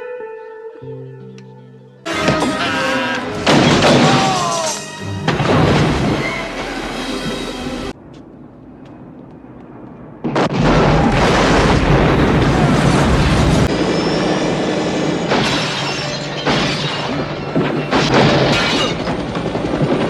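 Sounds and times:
crashing debris: 3.4 - 6.4, 10.2 - 13.7
loud explosion blast: 10.2 - 13.8.

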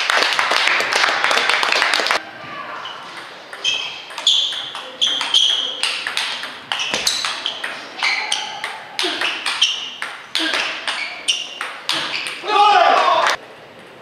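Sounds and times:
table tennis ball pinging: 3.0 - 12.5.

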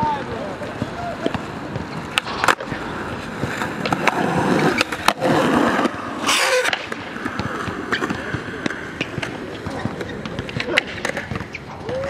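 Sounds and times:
skateboard clacks: 0.0 - 12.0
skateboard wheels rolling on asphalt: 0.0 - 12.0.

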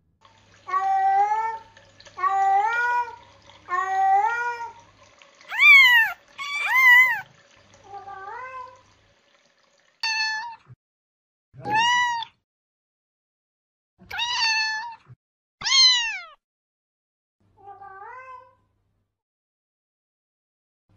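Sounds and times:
cat meowing: 5.5 - 7.3, 11.6 - 12.4, 14.1 - 16.4.

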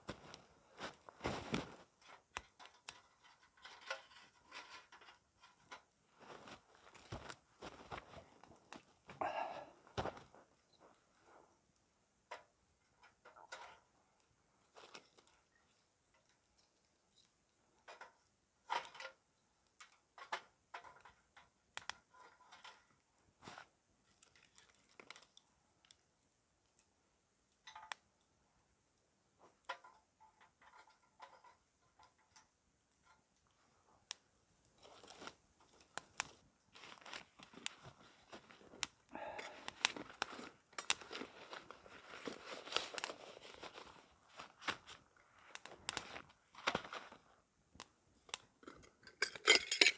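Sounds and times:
small dry sticks snapping: 34.8 - 37.9, 38.7 - 41.3
nylon pouch crinkling: 34.8 - 47.3.

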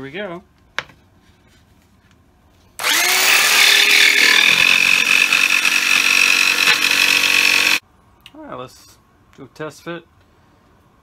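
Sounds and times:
electric power saw cutting: 2.8 - 7.8.

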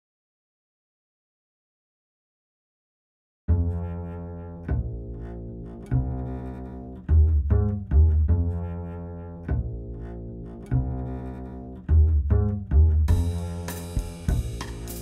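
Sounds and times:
double bass plucked notes: 3.5 - 15.0.

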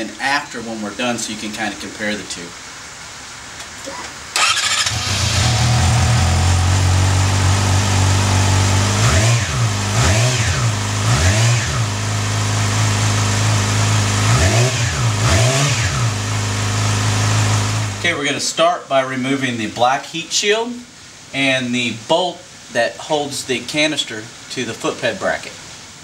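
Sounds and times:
motorcycle engine starting and idling: 4.3 - 18.0
motorcycle engine revving: 4.4 - 18.0.

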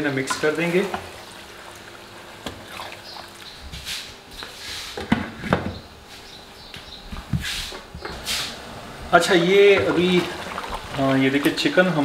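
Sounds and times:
wooden spoon stirring in a pan: 9.3 - 12.0.

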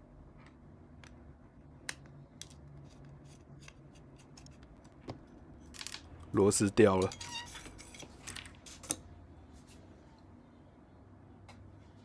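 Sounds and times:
faint low hum: 0.0 - 12.0
screwdriver metallic clicks and scrapes: 2.4 - 4.7.

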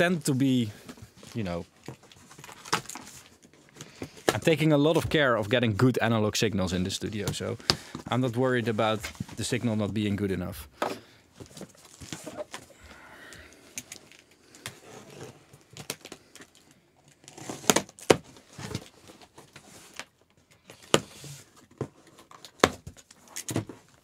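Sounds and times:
packaging rustling and clicking: 0.9 - 4.5, 13.6 - 24.0.

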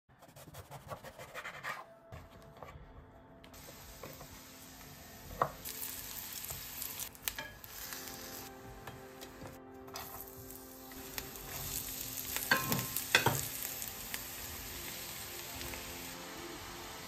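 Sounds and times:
vegetables sizzling in oil: 3.6 - 17.0.

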